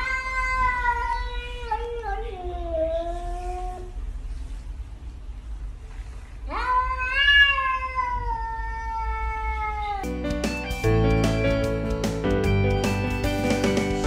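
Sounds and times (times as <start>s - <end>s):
cat meowing: 0.0s - 4.0s, 6.4s - 10.2s.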